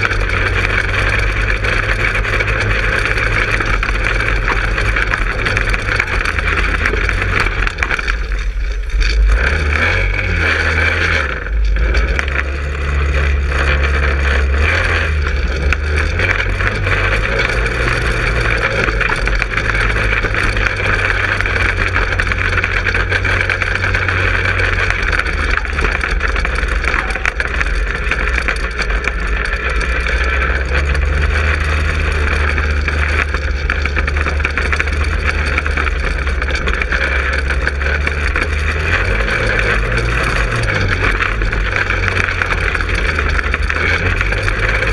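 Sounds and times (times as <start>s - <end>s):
go-kart engine running: 0.0s - 44.9s.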